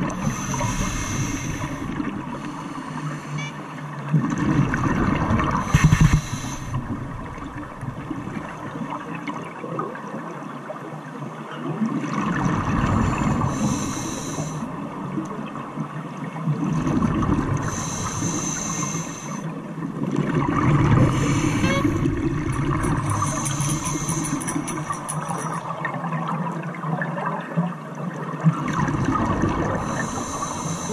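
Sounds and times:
scuba diver breathing underwater: 0.0 - 3.6, 5.5 - 7.0, 13.0 - 14.7, 17.6 - 19.5, 20.9 - 25.7, 29.6 - 30.9.

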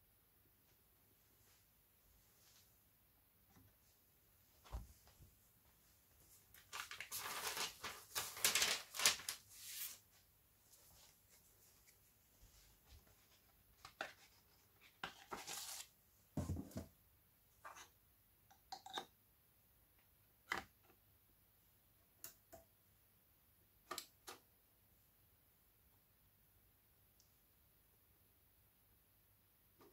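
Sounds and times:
record sleeve rustle: 13.0 - 15.9.

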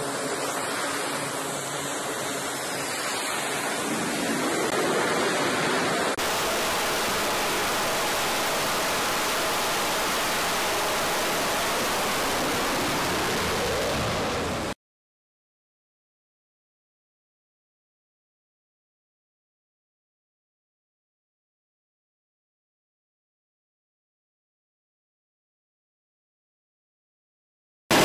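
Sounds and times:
jet engines roaring: 0.0 - 14.8.

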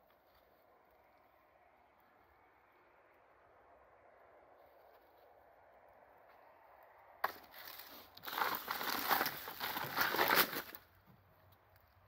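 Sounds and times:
crackling and rustling of leaves: 7.2 - 12.0.

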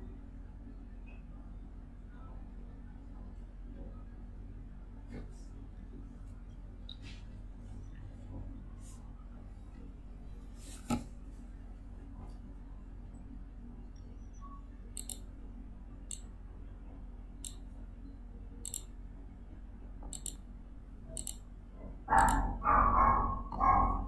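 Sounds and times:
computer mouse clicking: 15.0 - 15.3, 16.1 - 16.3, 17.4 - 17.6, 18.6 - 18.9, 20.1 - 20.4, 21.2 - 21.4, 22.1 - 22.4.

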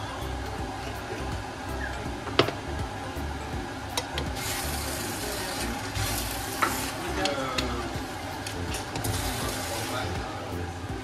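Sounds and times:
noodles sizzling in frying pan: 2.6 - 10.8.

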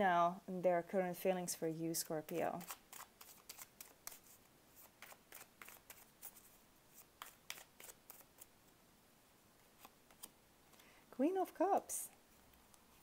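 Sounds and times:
cards being shuffled: 2.6 - 8.5, 9.7 - 10.8.

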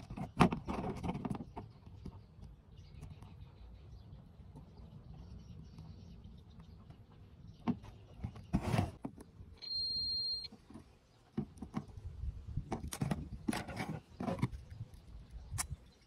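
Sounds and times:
multimeter beep: 9.6 - 10.5.

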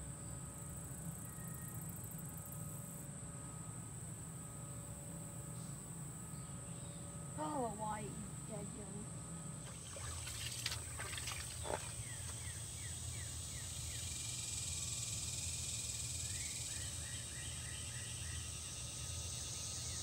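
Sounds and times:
high-pitched insect buzz: 5.5 - 20.0.

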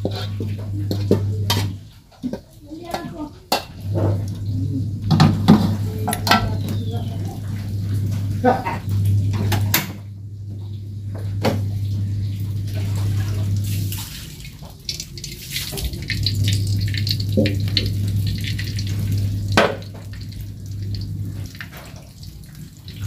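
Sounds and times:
steady low hum: 0.0 - 1.9, 3.7 - 14.0, 14.8 - 23.0
oil pouring into wok: 13.6 - 23.0.

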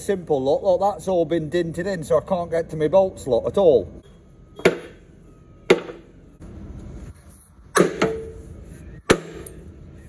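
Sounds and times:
hammer striking steel plate: 4.6 - 5.0, 5.7 - 6.0, 7.7 - 8.4, 9.1 - 9.6.

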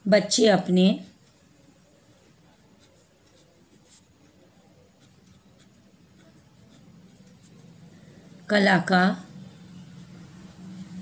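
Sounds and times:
ballpoint pen scratching on paper: 2.6 - 7.7.

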